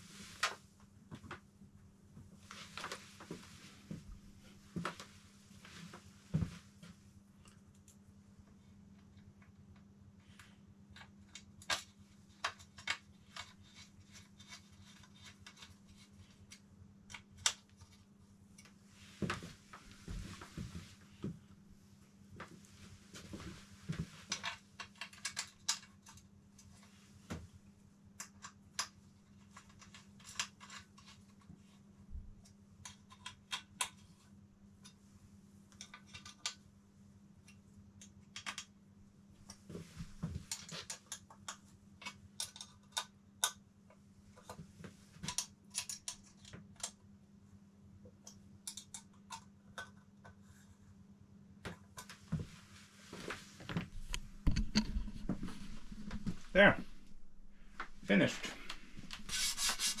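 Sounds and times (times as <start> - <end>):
low hum: 53.7 - 60.0.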